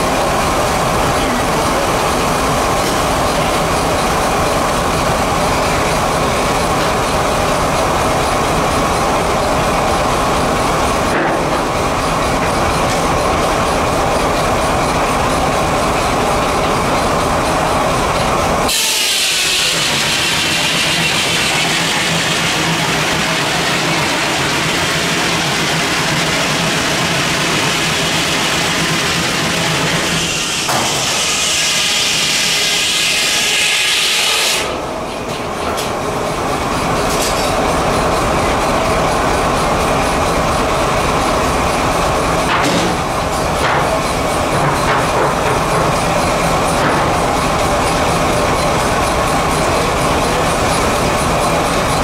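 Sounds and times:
sawmill mechanical clatter: 0.0s - 52.0s
saw blade cutting log: 29.9s - 34.7s.

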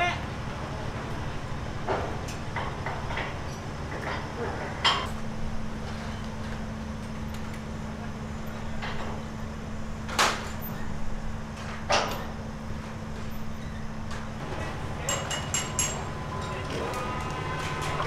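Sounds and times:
engine humming: 14.0s - 18.0s.

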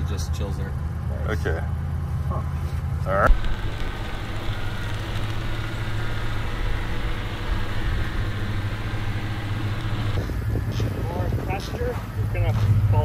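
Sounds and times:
engine running at low revs: 3.2s - 13.0s.

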